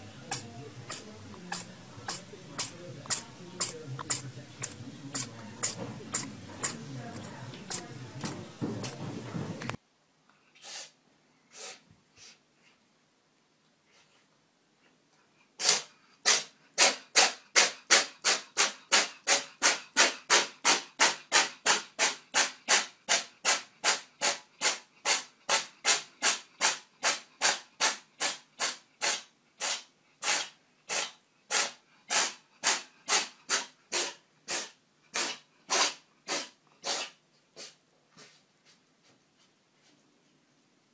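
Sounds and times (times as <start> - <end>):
cat sneezing: 10.6 - 12.4, 15.6 - 21.4, 22.0 - 37.8.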